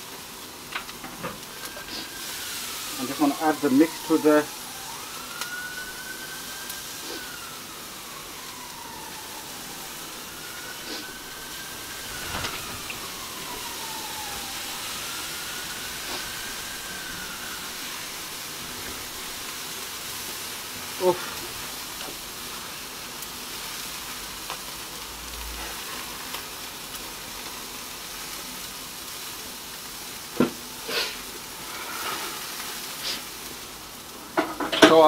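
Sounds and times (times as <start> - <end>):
steam hissing: 0.0 - 34.4
meat sizzling on charcoal grill: 0.0 - 35.0
faint whistling tone: 10.4 - 17.7.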